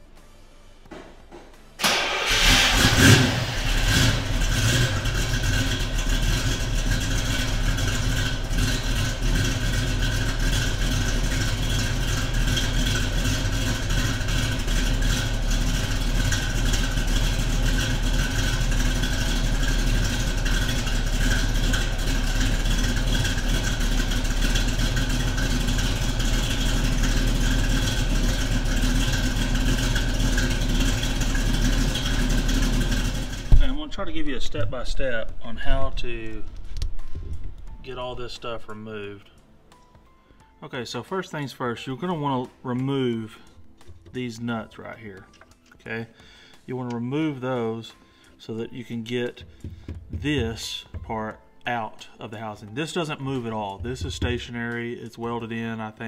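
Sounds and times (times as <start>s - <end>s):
car engine idling: 1.8s - 38.8s, 49.4s - 51.2s, 53.1s - 54.8s.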